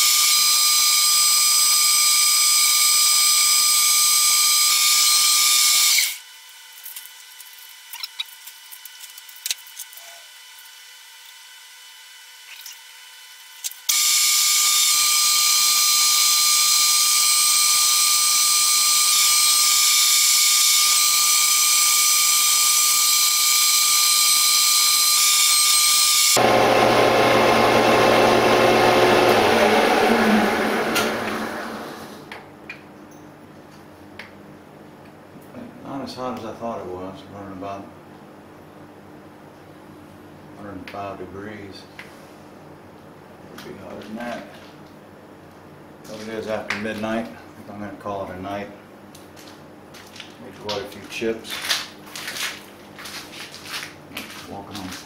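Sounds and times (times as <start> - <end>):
metal lathe whining: 13.9 - 32.2.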